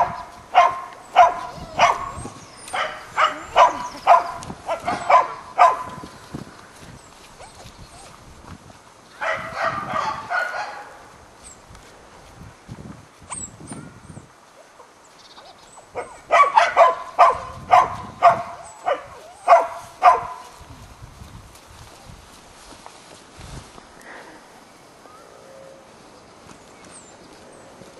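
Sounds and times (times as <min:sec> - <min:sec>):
dog barking: 0:00.0 - 0:06.0, 0:09.2 - 0:11.0, 0:16.0 - 0:20.4.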